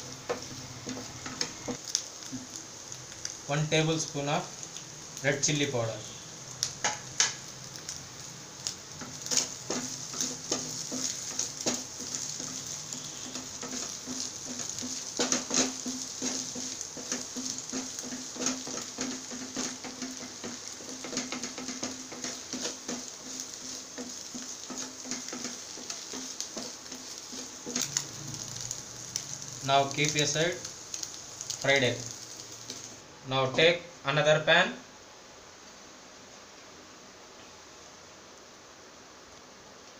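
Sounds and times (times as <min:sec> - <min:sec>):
wooden spatula scraping a pan: 0:00.0 - 0:01.8, 0:08.9 - 0:32.9
egg sizzling in a pan: 0:00.0 - 0:33.2.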